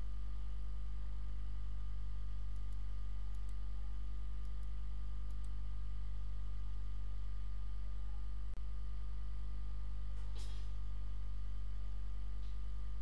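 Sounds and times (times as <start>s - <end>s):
low electrical hum: 0.0s - 13.0s
computer mouse clicking: 2.5s - 3.6s.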